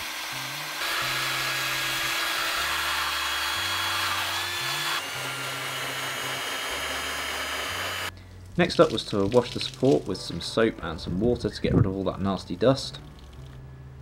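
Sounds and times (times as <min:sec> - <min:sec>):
drill wire brush scouring metal: 0:00.0 - 0:08.1.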